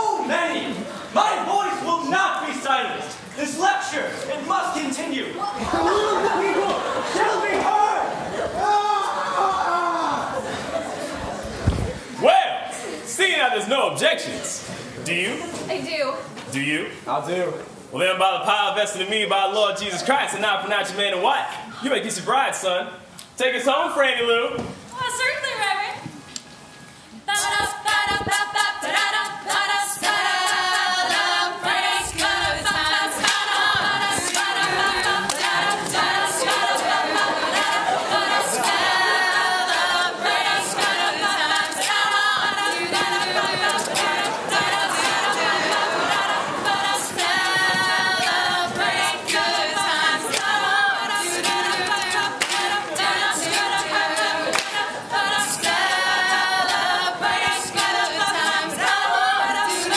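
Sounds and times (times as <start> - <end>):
a cappella group singing: 27.2 - 59.9
percussive beats: 39.6 - 54.9.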